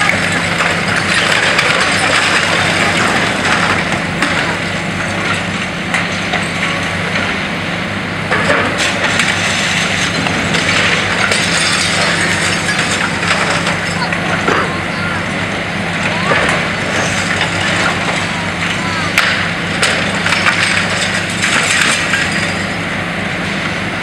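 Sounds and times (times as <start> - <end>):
concrete breaking and debris falling: 0.0 - 6.8, 8.3 - 14.7, 16.1 - 22.8
excavator diesel engine running: 0.0 - 24.0.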